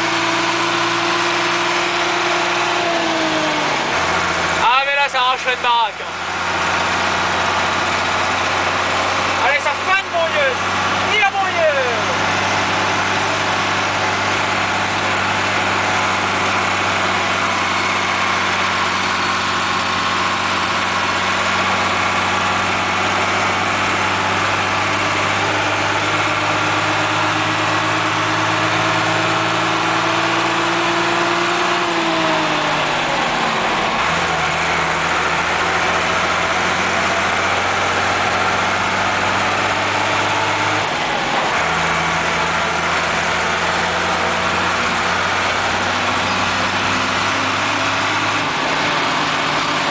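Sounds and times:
tractor diesel engine running: 0.0 - 49.9.

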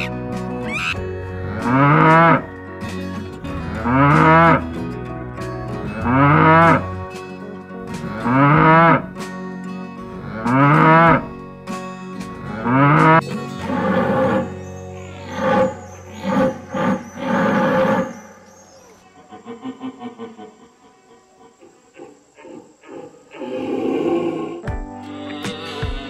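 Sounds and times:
cattle mooing: 0.0 - 2.6, 3.6 - 4.7, 6.0 - 7.0, 8.0 - 9.1, 10.1 - 11.3, 12.4 - 18.2
background music: 0.0 - 19.0, 24.6 - 26.0.

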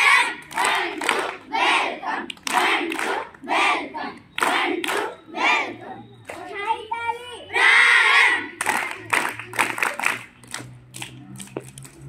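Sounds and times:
children clapping in unison: 0.0 - 1.5, 2.2 - 3.4, 4.4 - 5.1, 8.5 - 12.0
children shouting a chant: 0.0 - 9.2.

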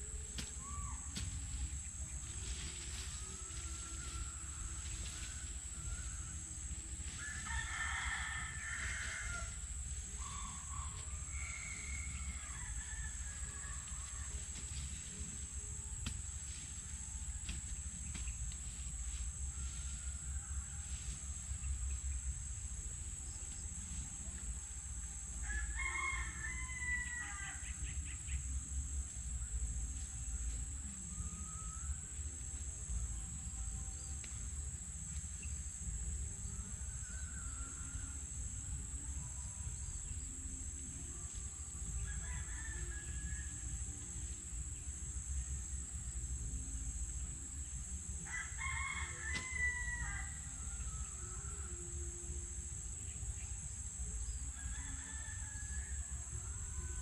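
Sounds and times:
high-pitched insect drone: 0.0 - 57.0
rooster crowing: 3.1 - 14.6, 25.4 - 28.0, 41.9 - 44.0, 48.2 - 52.2, 54.3 - 57.0.

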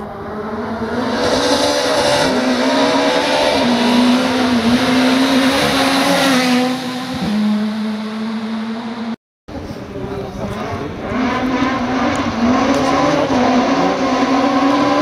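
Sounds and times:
rally car passing at speed: 0.0 - 9.2.

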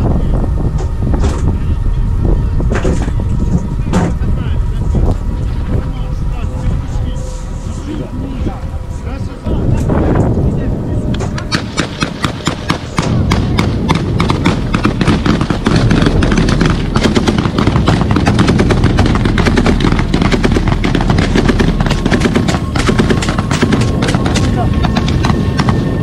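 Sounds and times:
other gunshots: 11.5 - 25.8
machine gun bursts: 13.9 - 25.3.

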